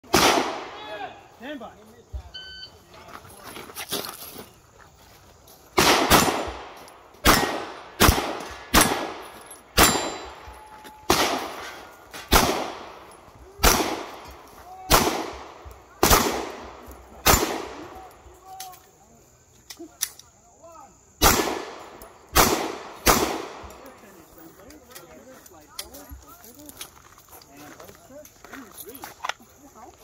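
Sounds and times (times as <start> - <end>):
pistol shots with echo: 0.0 - 1.0, 5.8 - 18.0, 21.2 - 23.8.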